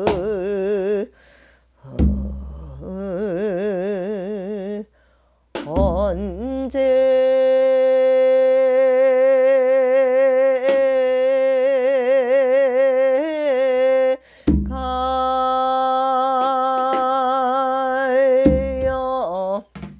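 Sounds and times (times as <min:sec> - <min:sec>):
woman singing unaccompanied: 0:00.0 - 0:01.2, 0:01.8 - 0:04.9, 0:05.6 - 0:19.8
short breath: 0:01.1 - 0:02.0, 0:04.9 - 0:05.5, 0:14.2 - 0:14.6.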